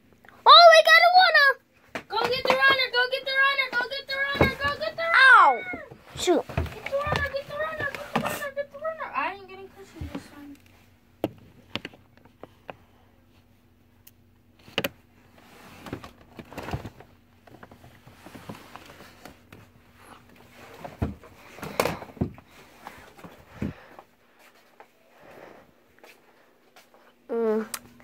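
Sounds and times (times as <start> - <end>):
rustling and scraping: 5.8 - 10.9, 14.6 - 27.1.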